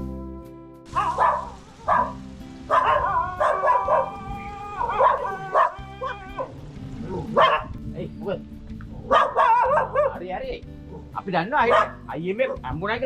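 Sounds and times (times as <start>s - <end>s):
dogs barking: 0.9s - 7.8s, 8.8s - 10.2s, 10.9s - 12.7s.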